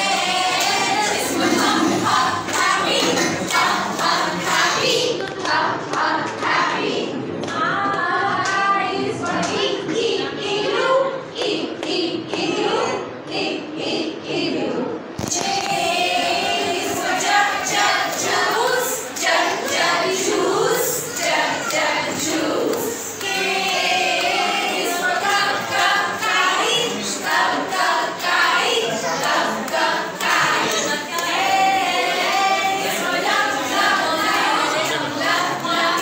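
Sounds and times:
children singing: 0.0 - 36.0.

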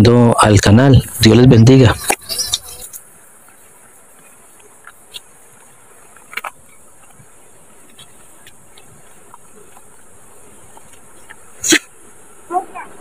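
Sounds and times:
insects buzzing: 0.0 - 13.0.

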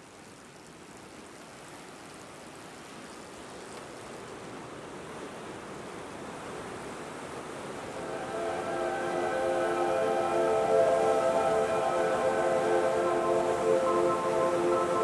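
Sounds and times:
steady rushing hiss: 7.6 - 15.0.

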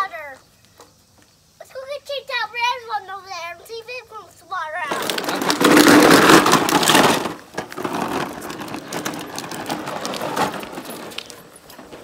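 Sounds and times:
plastic toy wheels rattling on concrete: 4.8 - 12.0.

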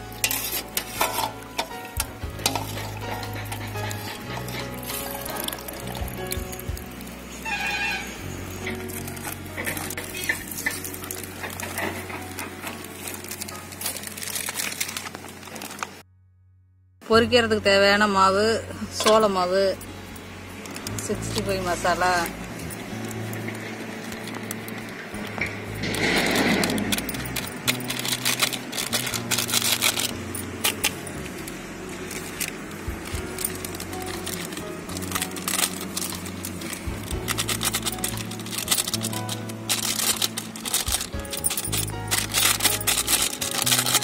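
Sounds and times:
plastic packet crinkling: 8.9 - 16.0, 26.0 - 44.0.

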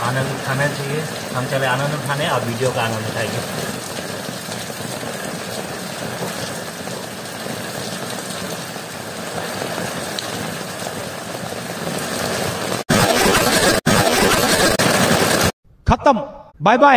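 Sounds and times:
rain on wet ground: 0.0 - 12.9
heavy rain on umbrella: 0.0 - 15.5.

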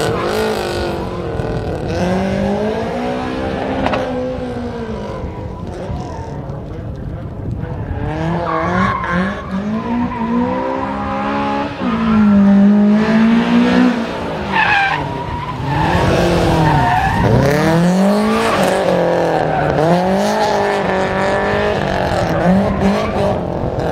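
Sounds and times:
tyres squealing on asphalt: 0.0 - 2.0, 7.8 - 12.7, 13.9 - 23.9
car engine revving hard: 8.0 - 23.9.

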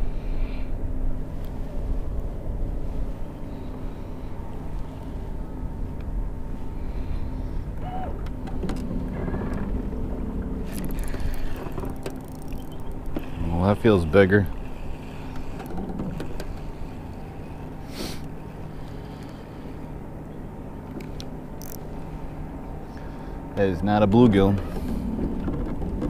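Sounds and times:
wind rumbling on microphone: 0.0 - 17.8, 24.1 - 26.0
steady low hum: 0.0 - 26.0
sharp clicks and rattles: 10.7 - 13.6, 20.9 - 21.8.

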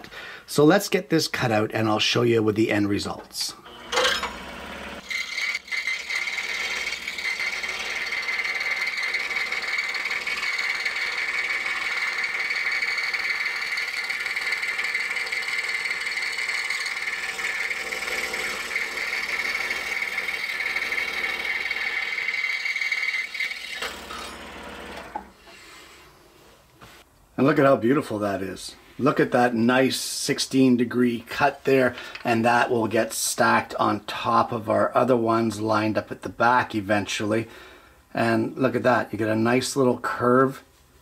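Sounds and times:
scroll saw cutting wood: 3.6 - 25.5.

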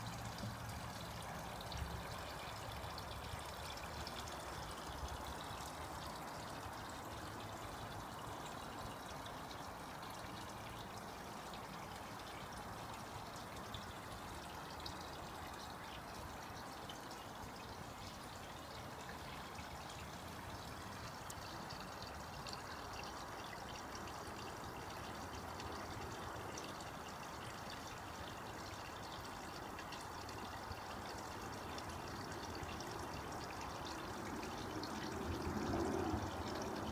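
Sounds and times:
water pouring into pond: 0.0 - 36.9.

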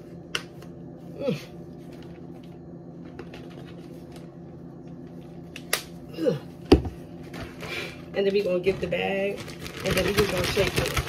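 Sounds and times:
low electrical hum: 0.0 - 11.0
woman humming: 1.1 - 1.6, 6.1 - 6.6.

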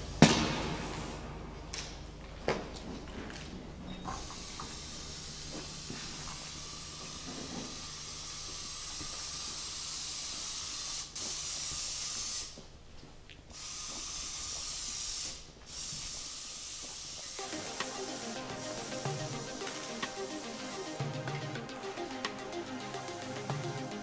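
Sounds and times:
steady hiss: 4.0 - 12.8, 13.5 - 24.0
music: 17.4 - 24.0.

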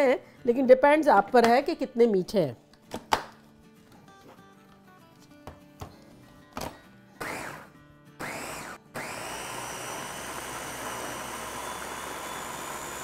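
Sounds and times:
food chopper motor: 7.2 - 13.0.

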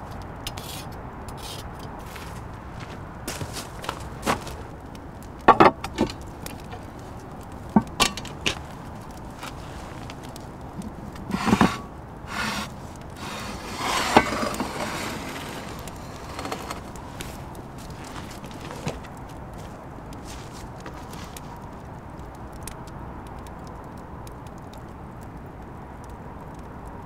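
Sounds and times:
pot scraping over brick: 11.2 - 19.2.

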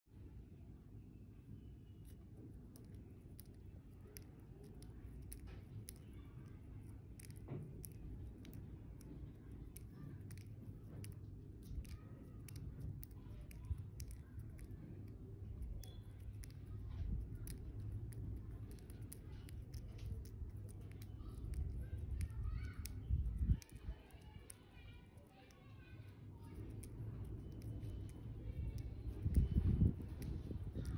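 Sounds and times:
seed shells clicking and tapping: 2.1 - 25.7, 26.3 - 30.9
low handling rumble: 2.2 - 25.0.

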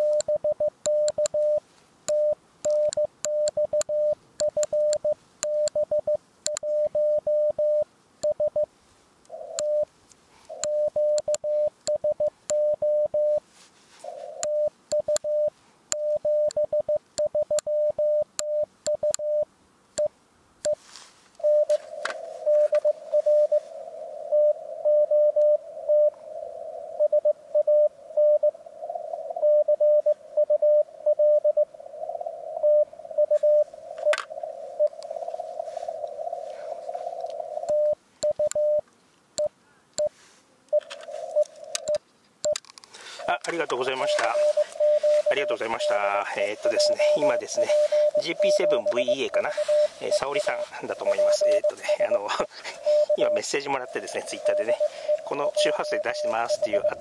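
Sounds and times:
morse code tone: 0.0 - 8.7, 9.4 - 9.9, 10.5 - 13.4, 14.3 - 20.8, 21.4 - 21.8, 22.4 - 23.6, 24.3 - 26.1, 29.4 - 31.7, 32.6 - 34.2, 37.7 - 38.8, 43.3 - 57.0
radio hiss: 10.4 - 16.9, 20.7 - 38.8, 39.4 - 42.0, 42.9 - 57.0.

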